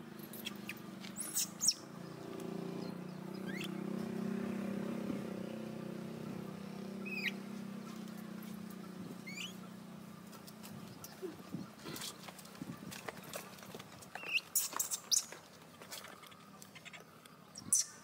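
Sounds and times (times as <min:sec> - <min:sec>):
low engine hum: 0:00.0 - 0:14.5
short high chirping calls: 0:00.4 - 0:02.0, 0:03.3 - 0:03.8, 0:07.0 - 0:07.4, 0:09.2 - 0:09.6, 0:14.2 - 0:15.3, 0:16.7 - 0:18.0.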